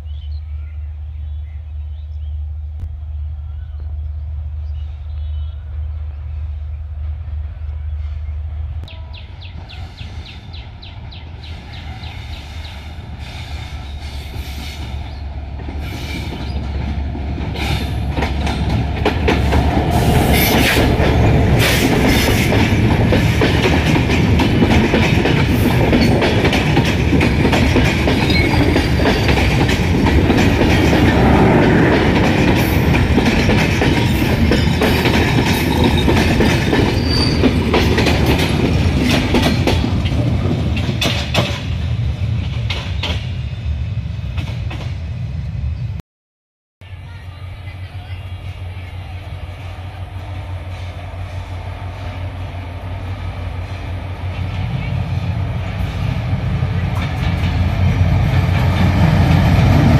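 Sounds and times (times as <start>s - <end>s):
diesel train passing: 0.0s - 46.0s, 46.8s - 59.9s
wheels clattering over rail joints: 32.2s - 41.7s.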